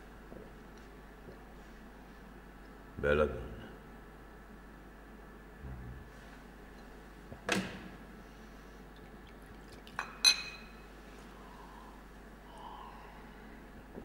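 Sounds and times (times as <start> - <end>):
glass clinking: 10.0 - 10.8.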